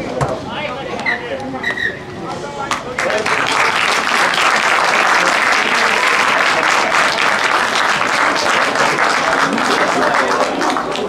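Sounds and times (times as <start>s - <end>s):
spectators applauding: 3.0s - 11.0s.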